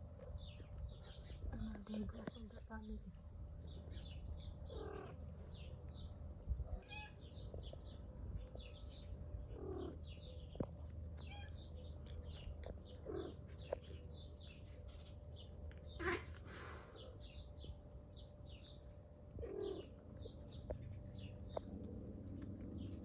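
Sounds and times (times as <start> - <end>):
low steady hum: 0.0 - 23.0
small birds twittering: 0.0 - 23.0
cats mewing softly: 3.2 - 17.3, 19.2 - 22.9.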